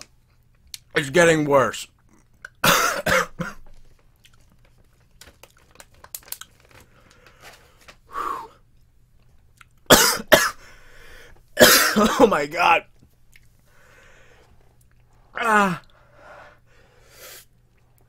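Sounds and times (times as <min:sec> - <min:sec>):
man coughing: 0:02.6 - 0:03.7, 0:09.9 - 0:10.6, 0:11.6 - 0:12.5
breathing: 0:06.7 - 0:08.6, 0:10.6 - 0:11.4, 0:13.6 - 0:15.3, 0:15.9 - 0:17.5.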